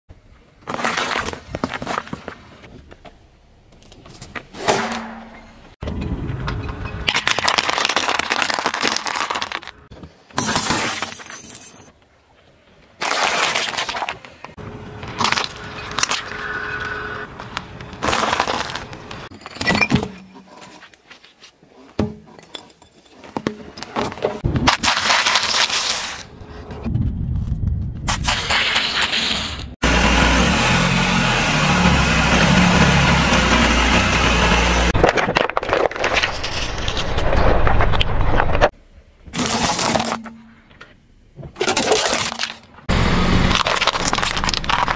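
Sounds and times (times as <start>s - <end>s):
tyre crushing objects: 17.4s - 22.3s.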